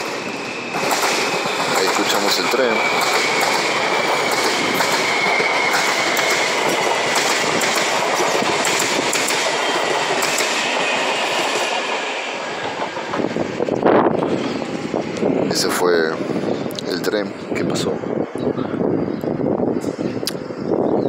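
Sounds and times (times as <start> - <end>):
train wheels clattering on rails: 0.0 - 15.3.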